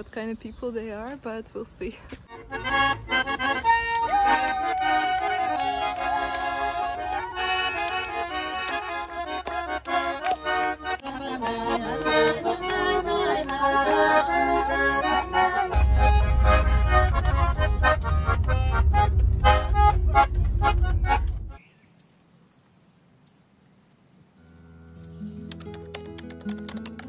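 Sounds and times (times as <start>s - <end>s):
button accordion playing folk tune: 2.1s - 21.6s.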